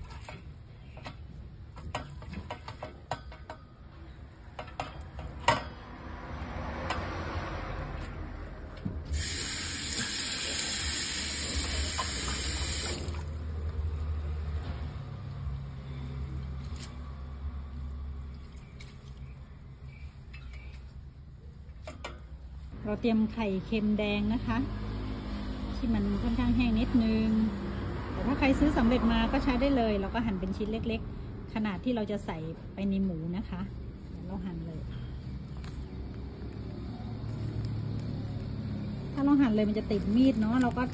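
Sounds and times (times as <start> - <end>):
metal pot clinking: 0.0 - 5.8
water splashing into metal sink: 9.1 - 13.4.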